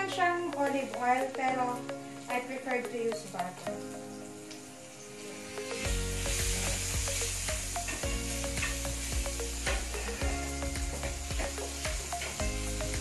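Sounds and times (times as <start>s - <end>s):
butter sizzling in a hot pan: 4.5s - 13.0s.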